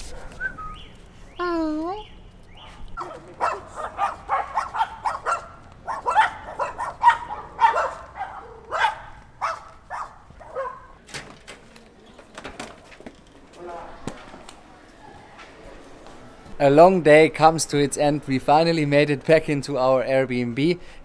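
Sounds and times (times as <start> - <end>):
dogs barking: 2.6 - 11.0.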